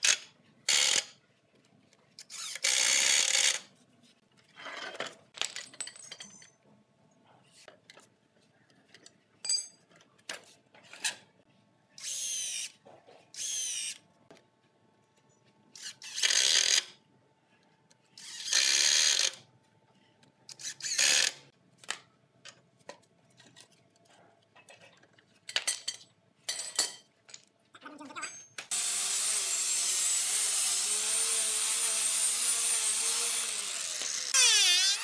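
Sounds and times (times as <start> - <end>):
cordless drill drilling into wood: 28.7 - 35.0.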